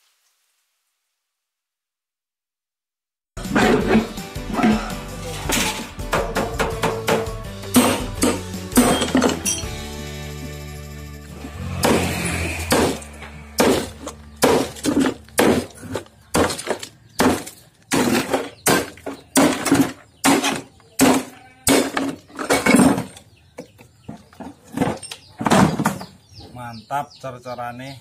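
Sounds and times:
hammer smashing concrete: 13.6s - 23.1s.

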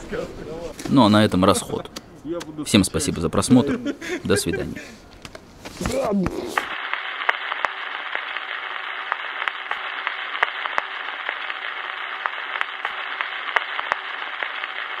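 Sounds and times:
static crackles and clicks: 5.1s - 15.0s
radio static hiss: 6.2s - 15.0s.

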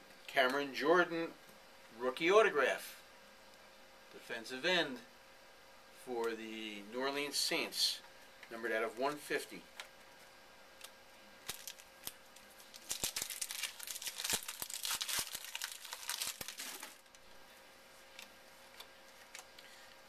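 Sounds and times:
plastic wrapper crinkling: 11.4s - 17.3s.

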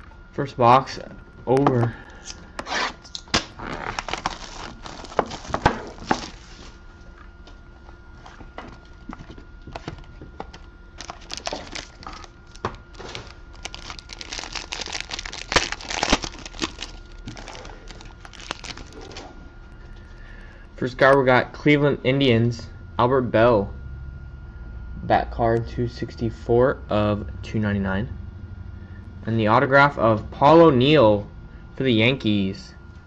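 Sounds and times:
plastic wrap crinkling and tearing: 3.1s - 6.6s, 11.0s - 19.3s
cardboard box clicks and rustles: 9.2s - 19.2s.

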